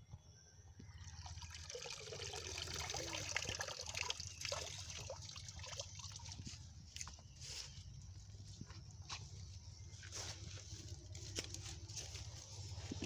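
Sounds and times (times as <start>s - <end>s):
pond water splashing and dripping: 1.0s - 7.4s.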